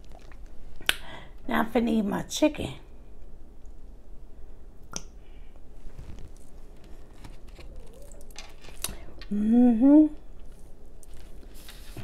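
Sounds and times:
woman humming mmm: 9.2s - 10.3s.

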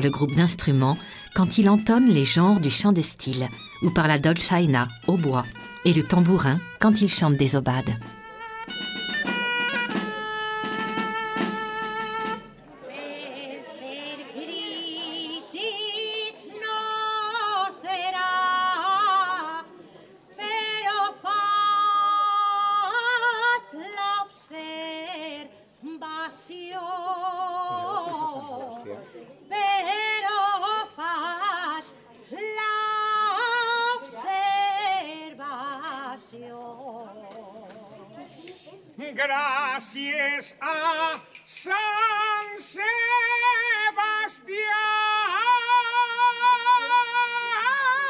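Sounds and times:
solo voice singing with vibrato: 39.6s - 48.0s.

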